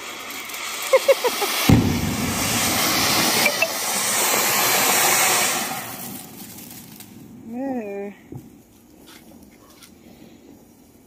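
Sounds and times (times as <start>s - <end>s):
firework fountain hissing: 0.0s - 7.6s.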